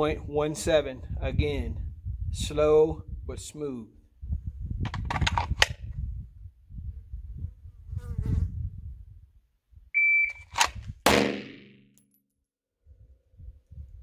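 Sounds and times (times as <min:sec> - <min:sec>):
shot timer beep: 0:10.0 - 0:10.5
handgun gunshots: 0:10.6 - 0:11.8.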